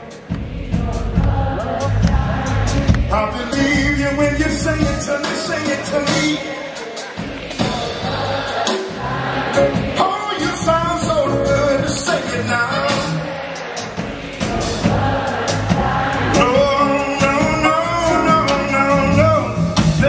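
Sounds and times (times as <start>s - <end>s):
live jazz band over sound system: 0.0s - 20.0s
sliding lead melody: 9.0s - 13.4s, 14.6s - 20.0s.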